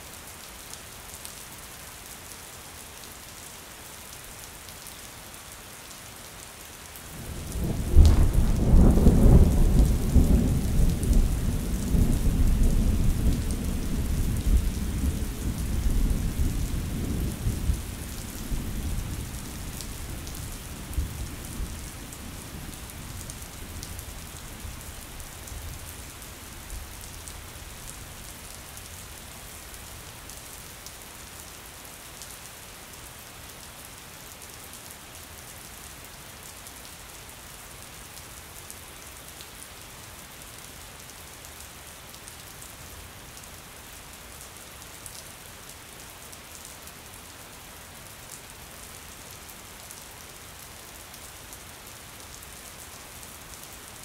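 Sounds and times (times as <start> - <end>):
thunder rumbling: 7.5 - 17.7.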